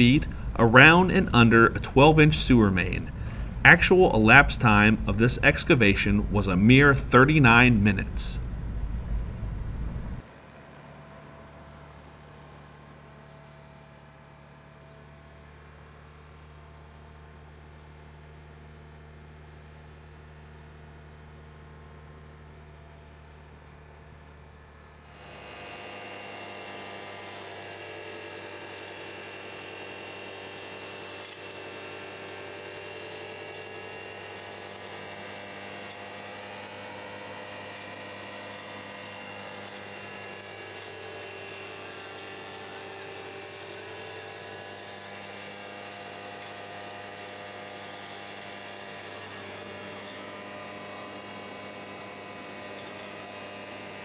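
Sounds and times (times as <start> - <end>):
vacuum machine whine: 1.7 - 10.3, 25.1 - 54.0
hose sucking soil hiss: 25.1 - 54.0.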